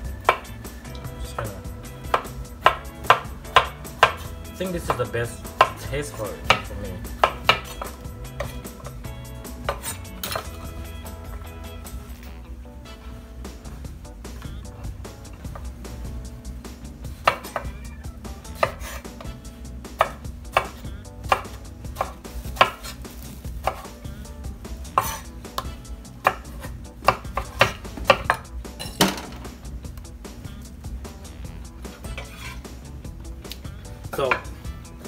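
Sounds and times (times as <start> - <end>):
knife slicing on wooden board: 18.6 - 19.2, 25.0 - 28.2, 31.9 - 32.6.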